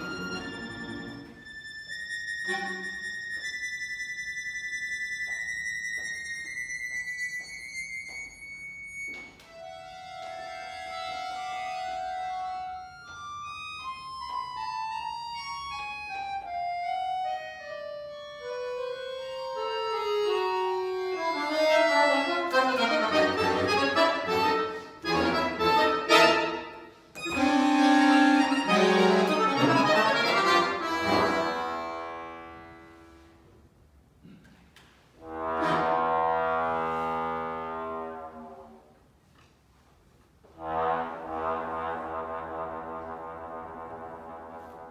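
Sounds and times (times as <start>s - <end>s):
solo accordion: 0.0s - 4.7s, 5.4s - 33.5s.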